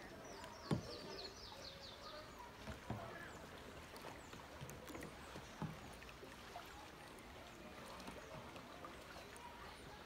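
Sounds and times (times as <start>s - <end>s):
paddle dipping in water: 0.0s - 10.0s
water lapping: 0.0s - 10.0s
soft knocks against hull: 0.5s - 1.1s, 2.6s - 3.3s.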